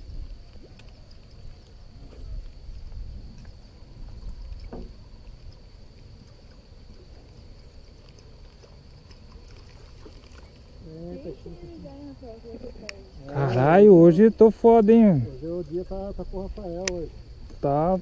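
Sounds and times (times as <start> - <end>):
low rumble of wind: 0.0 - 18.0
water lapping against boat hull: 0.0 - 18.0
faint clicks: 12.7 - 13.0, 16.5 - 17.6.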